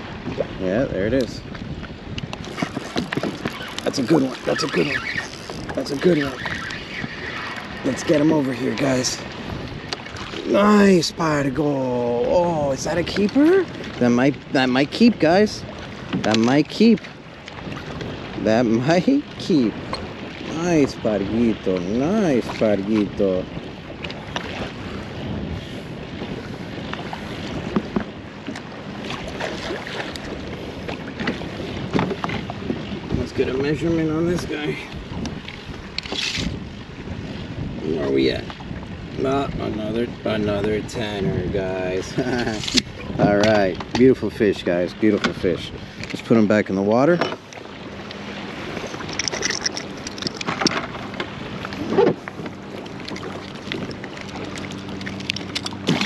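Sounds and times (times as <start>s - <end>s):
waves slapping kayak hull: 0.0s - 56.0s
wind buffeting microphone: 0.0s - 56.0s
fishing rod knocks and clicks: 2.1s - 4.0s, 42.6s - 44.1s, 48.8s - 51.3s, 55.0s - 56.0s.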